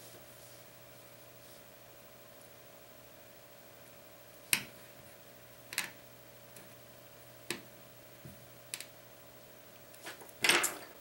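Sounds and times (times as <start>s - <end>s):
faint electrical hum: 0.0s - 11.0s.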